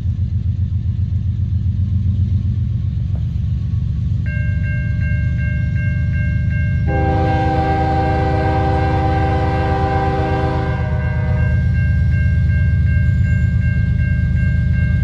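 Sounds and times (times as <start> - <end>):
freight train rumbling: 0.0 - 15.0
bell ringing: 4.3 - 7.9, 10.1 - 15.0
locomotive air horn blast: 6.9 - 11.7.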